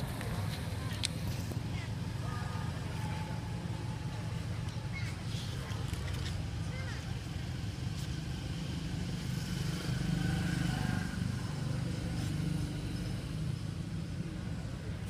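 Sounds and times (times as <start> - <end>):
low engine rumble: 0.0 - 9.4.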